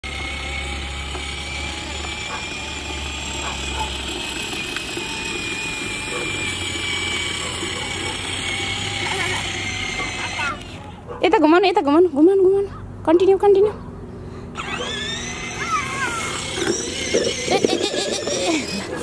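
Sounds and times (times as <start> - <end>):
toy motorcycle motor whirring: 0.0 - 11.0, 14.5 - 19.0.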